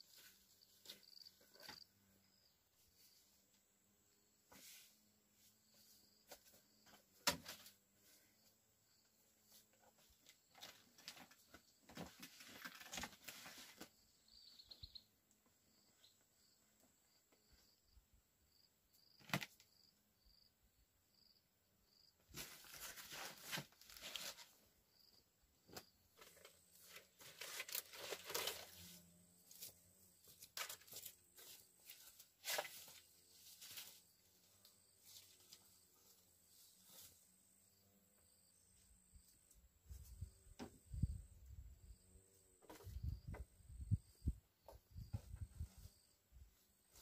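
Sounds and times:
faint rustling and scraping: 0:00.0 - 0:03.6, 0:04.4 - 0:14.4, 0:22.2 - 0:37.9, 0:38.7 - 0:41.2, 0:44.2 - 0:47.0.

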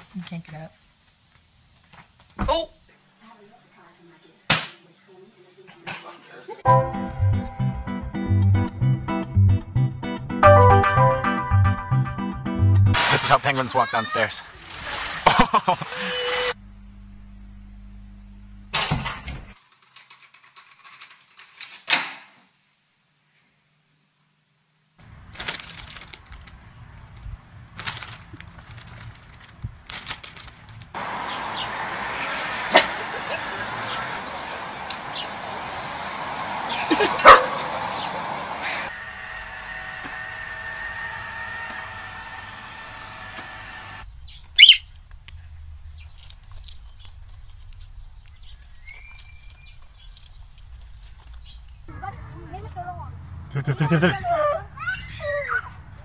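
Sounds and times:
outdoor background: 0:00.0 - 0:56.0
parrot screeching: 0:13.7 - 0:14.4, 0:44.6 - 0:44.9
robot vacuum motor whirring: 0:14.4 - 0:16.6, 0:38.9 - 0:44.0
plastic bags crinkling: 0:25.0 - 0:31.0
faint bird chirps: 0:44.1 - 0:47.2, 0:47.8 - 0:50.2
short rising whistle: 0:44.6 - 0:44.9.

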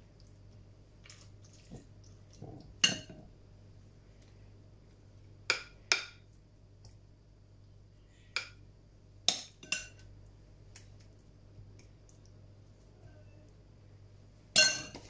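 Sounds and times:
metal spoon clinking on bowl: 0:14.6 - 0:15.0.

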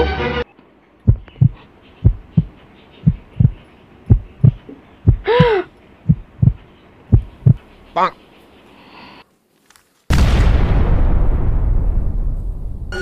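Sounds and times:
heartbeat thumps: 0:01.1 - 0:07.9.

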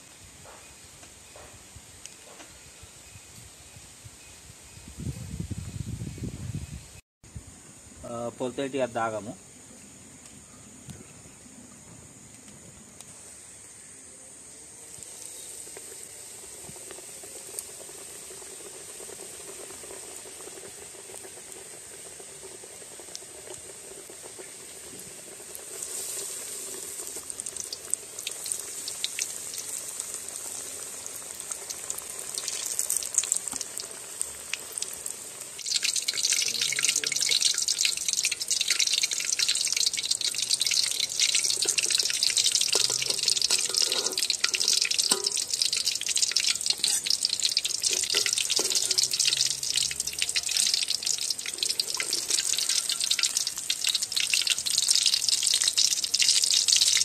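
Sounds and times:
food deep-frying in oil: 0:14.7 - 0:57.0.

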